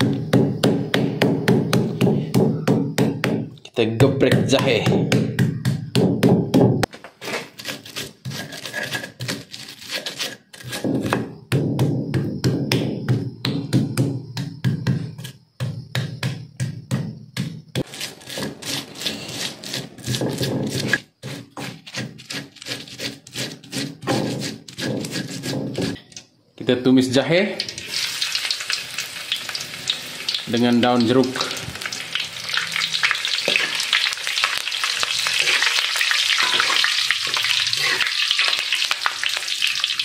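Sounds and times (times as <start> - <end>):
stone pestle knocking and grinding: 0.0 - 6.9, 7.6 - 26.0.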